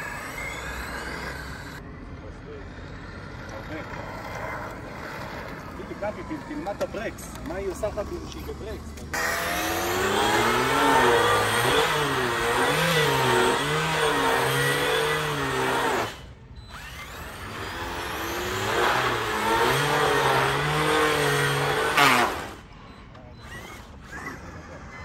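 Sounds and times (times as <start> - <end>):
racing engine sound revving: 9.1 - 16.2.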